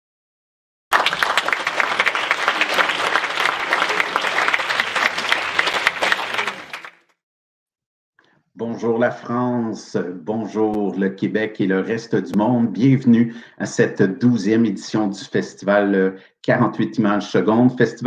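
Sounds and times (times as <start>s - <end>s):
audience applause: 0.9s - 7.0s.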